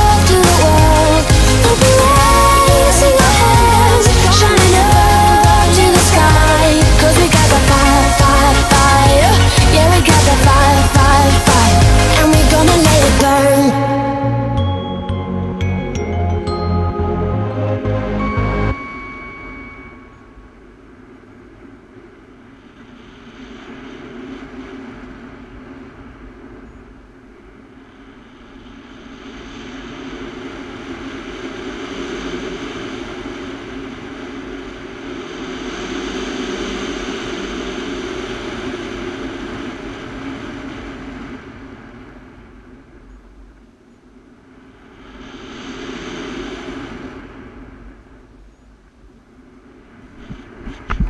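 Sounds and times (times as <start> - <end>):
wind rushing over microphone: 0.0 - 14.0, 18.8 - 51.0.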